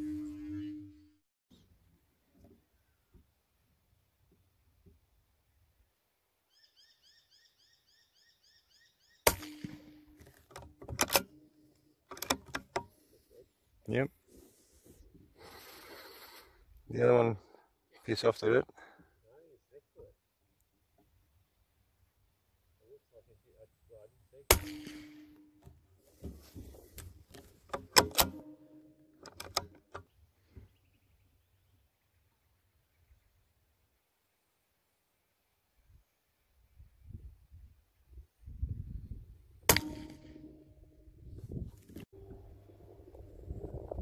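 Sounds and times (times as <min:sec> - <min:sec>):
rifle shot: 0:09.3 - 0:10.2, 0:24.5 - 0:25.4, 0:39.7 - 0:40.6
rifle bolt metallic clicks: 0:09.3 - 0:11.5, 0:12.1 - 0:12.9, 0:27.4 - 0:30.0.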